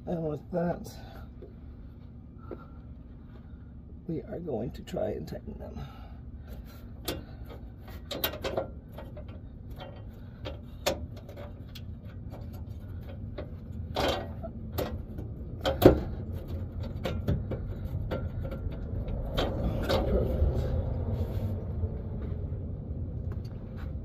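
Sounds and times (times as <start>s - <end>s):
low background rumble: 0.0s - 24.0s
metal clank: 7.0s - 20.3s
metallic clicks and knocks: 7.0s - 20.6s.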